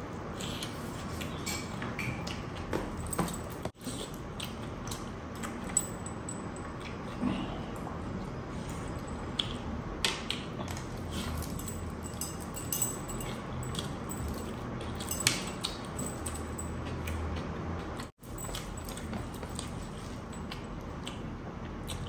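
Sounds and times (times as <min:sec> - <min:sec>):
chewing and mouth clicks: 0:03.6 - 0:05.8, 0:08.1 - 0:11.6, 0:13.2 - 0:22.0
rings and bracelets jangling: 0:11.2 - 0:16.8.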